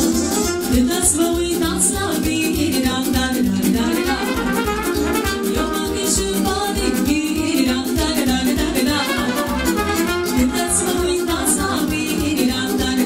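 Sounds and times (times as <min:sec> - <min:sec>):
saxophone playing: 0:03.9 - 0:05.8, 0:09.0 - 0:11.5.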